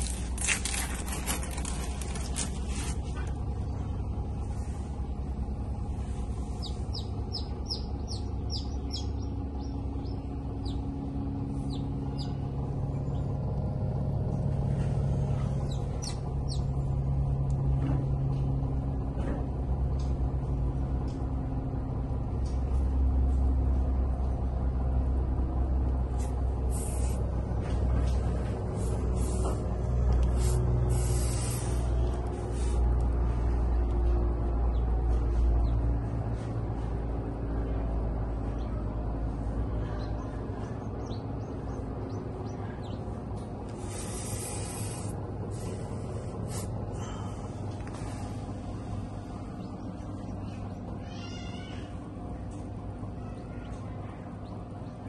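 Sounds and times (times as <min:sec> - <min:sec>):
low hum and rumble: 0:00.0 - 0:55.0.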